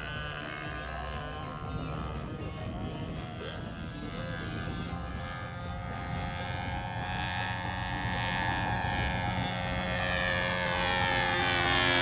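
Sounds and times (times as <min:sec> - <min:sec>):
model plane engine whine: 0:00.0 - 0:12.0.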